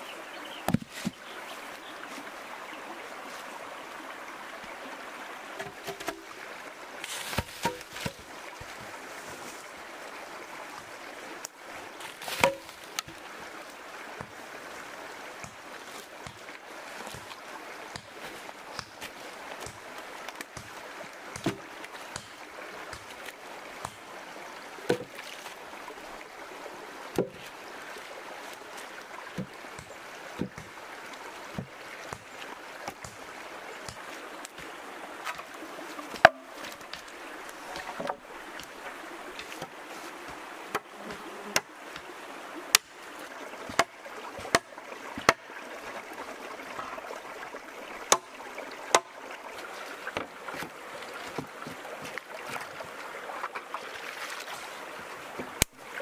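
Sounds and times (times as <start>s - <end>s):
shallow stream running: 0.0s - 56.0s
stones knocking and splashing: 0.6s - 1.2s, 5.5s - 6.3s, 7.0s - 8.9s, 12.0s - 13.2s, 15.4s - 24.0s, 24.9s - 25.5s, 27.1s - 27.5s, 29.2s - 30.7s, 31.5s - 33.2s, 33.8s - 42.0s, 43.6s - 45.5s, 50.0s - 54.6s.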